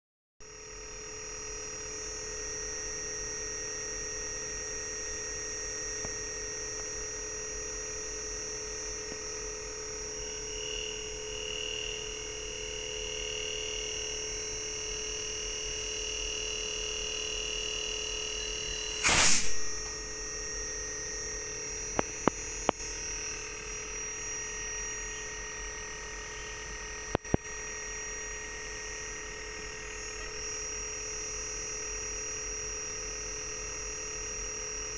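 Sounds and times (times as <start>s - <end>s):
electrical whine of compressor: 0.4s - 34.9s
loud brief burst of noise: 19.0s - 19.9s.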